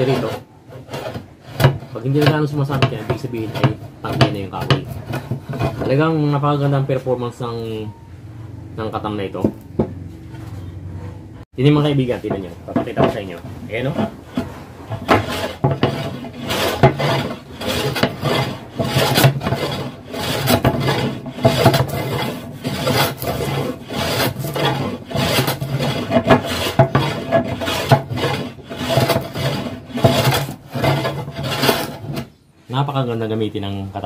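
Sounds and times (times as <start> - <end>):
hand plane shaving wood: 0.0 - 6.2, 12.8 - 32.3.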